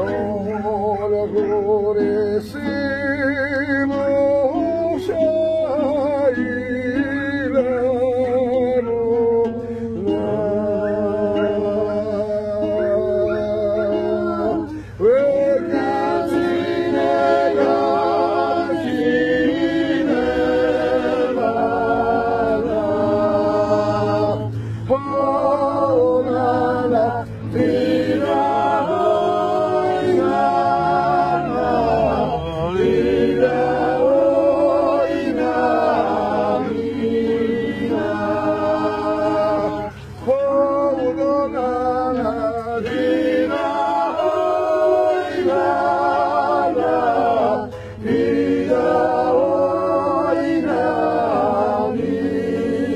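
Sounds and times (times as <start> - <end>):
a cappella choir singing: 0.0 - 52.9.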